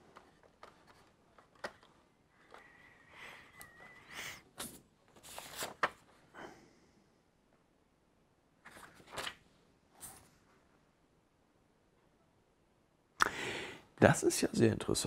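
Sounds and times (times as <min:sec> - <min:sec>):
packet and paper rustling: 0:04.6 - 0:06.1.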